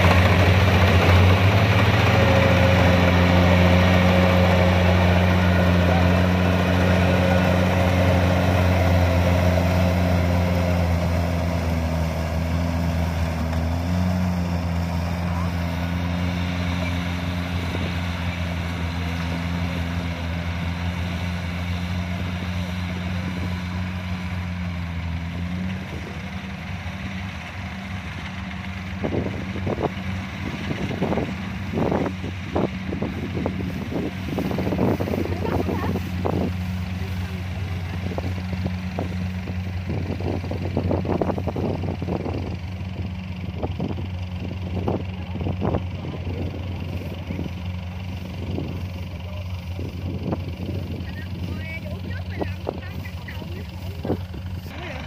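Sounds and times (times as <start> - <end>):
combine harvester diesel engine: 0.0 - 55.0.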